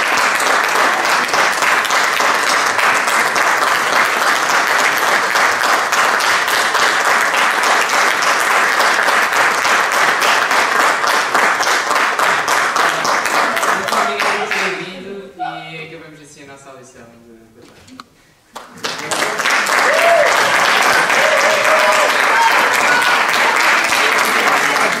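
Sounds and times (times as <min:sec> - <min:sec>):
audience applauding: 0:00.0 - 0:14.8, 0:18.6 - 0:25.0.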